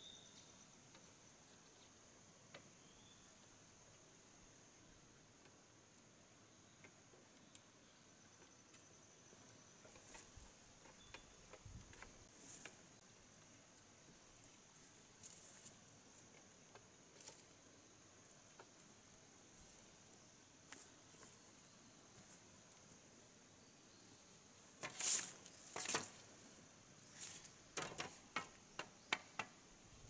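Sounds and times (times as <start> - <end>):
insect hum: 0.0 - 30.0
rustling scrapes: 24.8 - 26.2
taps on bamboo floor: 27.8 - 29.6.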